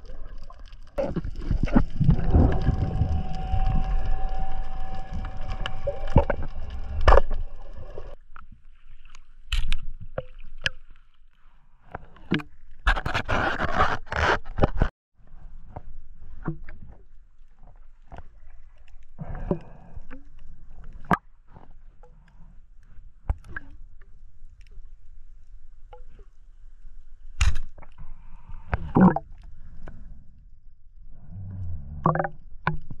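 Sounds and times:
bubbling splashing water: 0.0 - 8.2.

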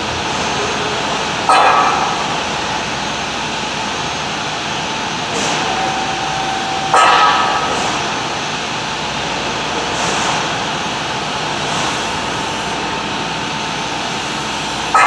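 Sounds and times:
workshop machinery running: 0.0 - 15.0
ringing metallic clang: 5.5 - 8.2.

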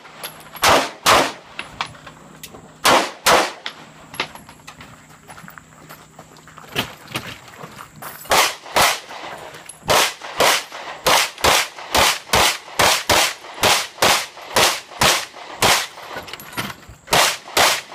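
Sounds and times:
pistol shots: 0.6 - 1.5, 2.8 - 3.8, 8.3 - 16.1, 17.1 - 17.9.

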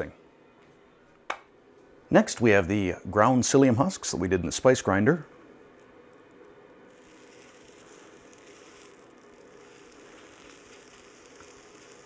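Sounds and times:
batter sizzling on hot plate: 6.8 - 12.0.

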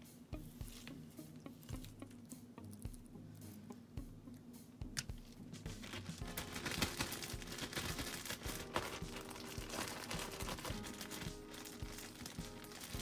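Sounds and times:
plastic bag crinkling: 5.8 - 13.0.

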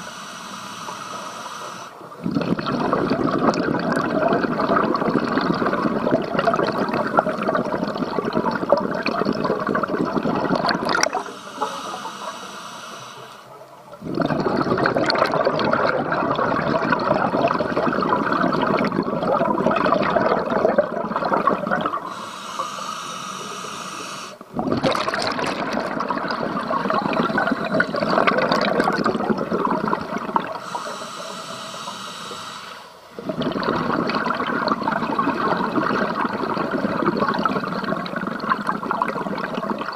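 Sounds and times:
regulator hissing inhalation: 0.0 - 2.0, 11.0 - 13.5, 22.1 - 24.5, 27.0 - 28.0, 30.6 - 33.2
exhaled bubbles underwater: 0.8 - 12.4, 13.5 - 22.8, 23.4 - 32.4, 33.1 - 39.9.

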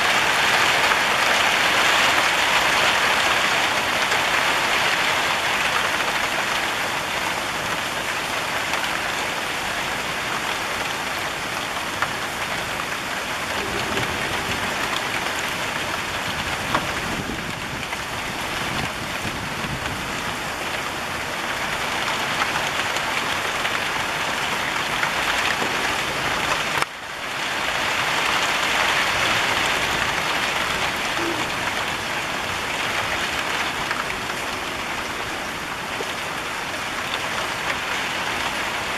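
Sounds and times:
rain on tiled roofs: 0.0 - 38.9.

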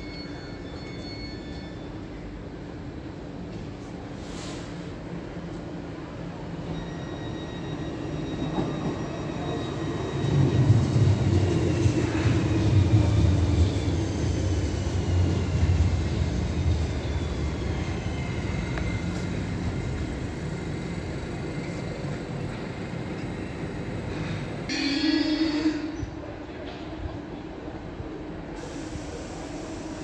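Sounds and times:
train wheels rumbling on rails: 0.0 - 30.0
high brake whines: 6.6 - 26.0, 28.6 - 30.0.

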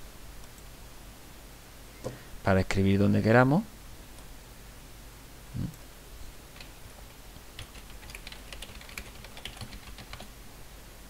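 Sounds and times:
computer keyboard typing: 6.5 - 7.0, 7.6 - 10.3.

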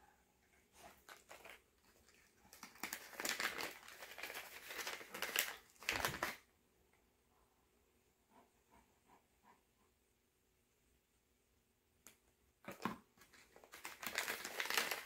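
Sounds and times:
packaging crinkling and rustling: 0.8 - 6.5, 12.7 - 15.0.

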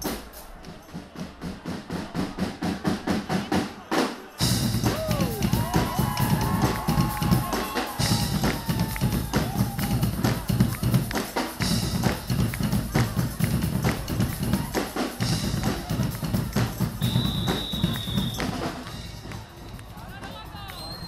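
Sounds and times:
drums beating fast rhythm: 0.0 - 21.0
brass notes: 13.1 - 20.2.

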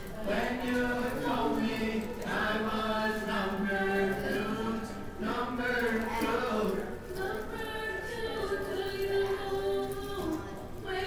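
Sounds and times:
voices chanting in held notes: 0.2 - 8.6.

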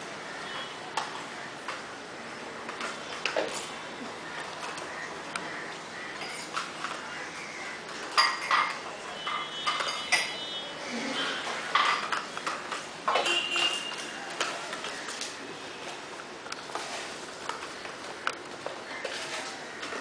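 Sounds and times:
metal bowl clinking: 8.1 - 10.6.

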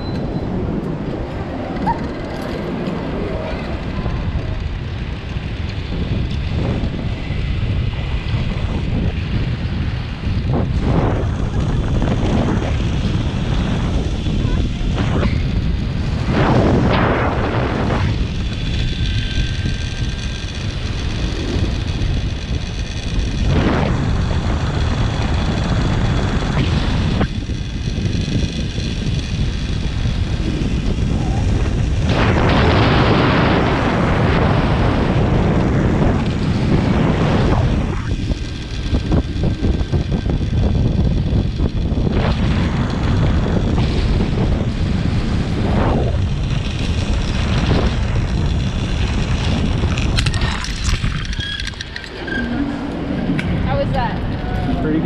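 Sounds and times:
wind buffeting microphone: 0.0 - 55.0
pulleys whining on steel cable: 17.3 - 32.2, 45.4 - 53.9.

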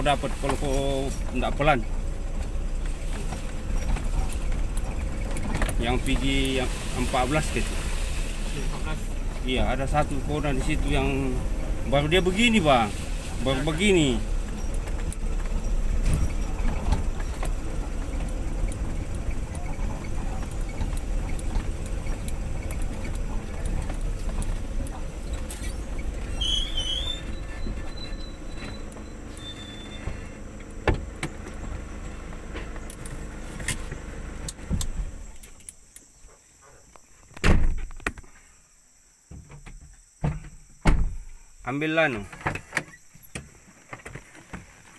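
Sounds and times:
vehicle engine and road rumble: 0.0 - 44.9
knocks and rattles: 0.4 - 6.6, 14.2 - 26.4.

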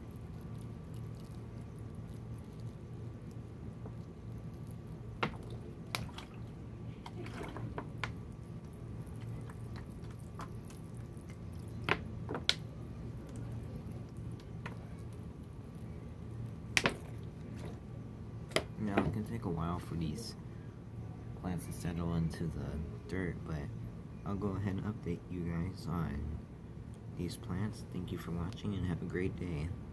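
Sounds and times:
water dripping: 0.0 - 17.8
water trickling onto soil: 0.0 - 17.8.

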